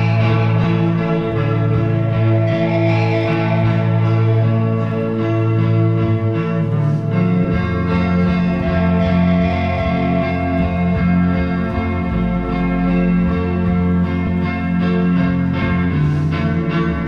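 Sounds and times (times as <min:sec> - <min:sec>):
guitar sustained notes: 0:00.0 - 0:17.0
low drone: 0:00.0 - 0:17.0.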